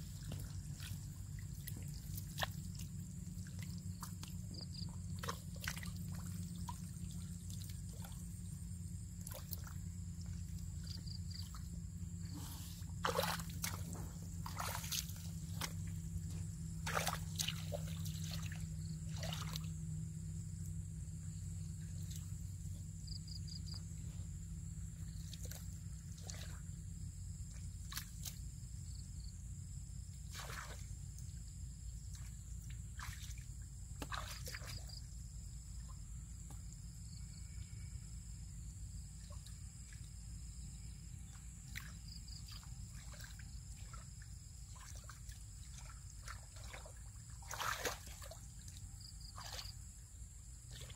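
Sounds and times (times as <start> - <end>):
splashes and squelches in mud: 0.0 - 20.8, 21.7 - 29.0, 30.0 - 38.2, 38.9 - 50.9
steady low rumble: 0.0 - 27.9
muddy water trickling and sloshing: 0.0 - 50.9.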